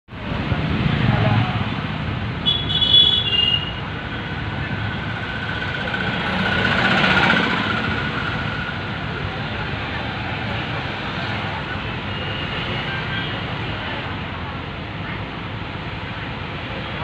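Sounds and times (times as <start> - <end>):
traffic heard from inside vehicle: 0.1 - 17.0
bus passing close: 3.7 - 17.0.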